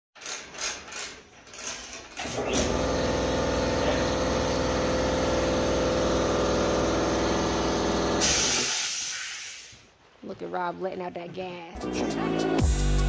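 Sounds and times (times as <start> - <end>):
electric motor humming: 2.4 - 8.2.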